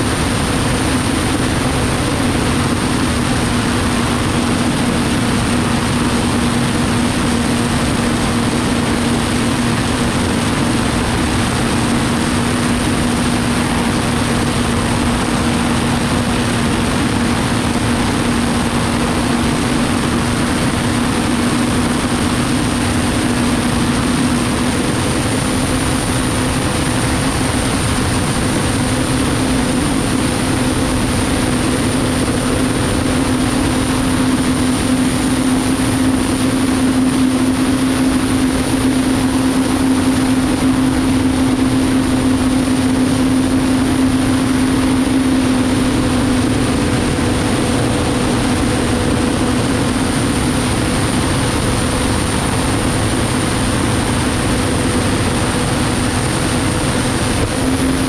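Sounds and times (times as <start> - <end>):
high turbine whine: 0.0 - 58.0
low engine hum: 0.0 - 58.0
rush of wind and spray: 0.0 - 58.0.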